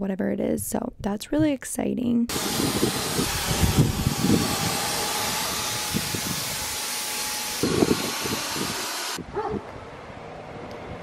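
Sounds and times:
wind buffeting microphone: 0:02.3 - 0:06.9, 0:07.5 - 0:11.0
paint sprayer hissing: 0:02.3 - 0:09.2.

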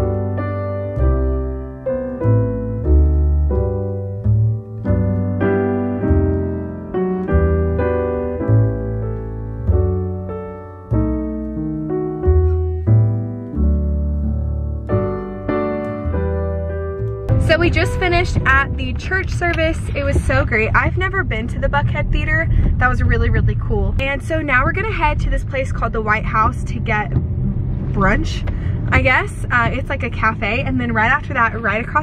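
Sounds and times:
slow piano chords and notes: 0:00.0 - 0:20.5, 0:26.7 - 0:29.0.

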